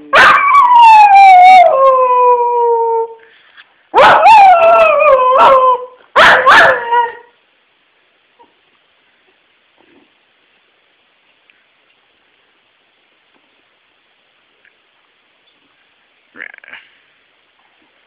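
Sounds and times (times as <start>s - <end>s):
dog howling: 0.1s - 3.2s, 4.0s - 7.3s.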